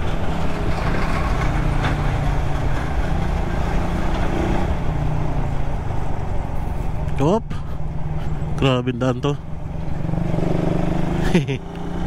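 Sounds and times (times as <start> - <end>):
motorcycle engine cruising: 0.0 - 12.0
wind and road noise: 0.0 - 12.0.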